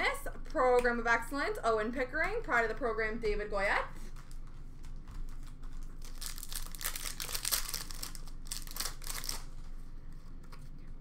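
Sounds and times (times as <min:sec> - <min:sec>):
wrapper tearing and crinkling: 0:05.3 - 0:09.6.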